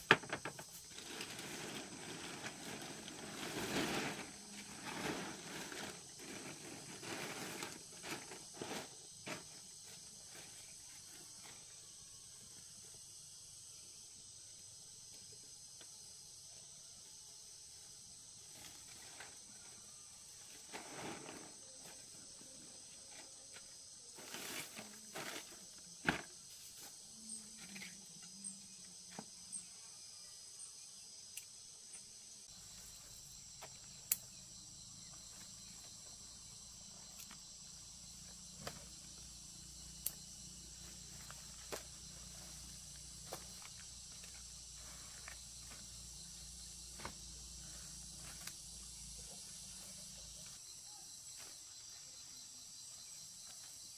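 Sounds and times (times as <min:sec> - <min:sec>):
insects chirring: 0:00.0 - 0:53.9
rustling: 0:00.4 - 0:11.5.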